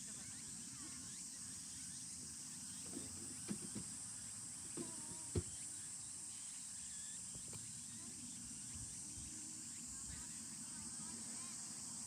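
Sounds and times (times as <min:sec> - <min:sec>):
high-pitched insect chorus: 0:00.0 - 0:12.0
faint short knocks: 0:04.7 - 0:05.6.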